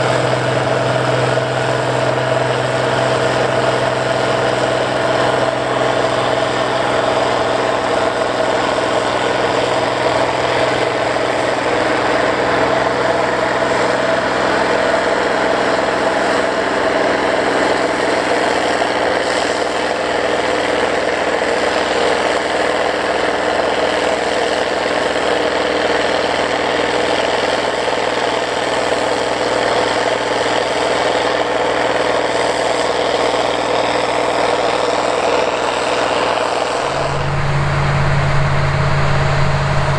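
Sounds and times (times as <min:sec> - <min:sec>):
tractor diesel engine pulling: 0:00.0 - 0:39.9.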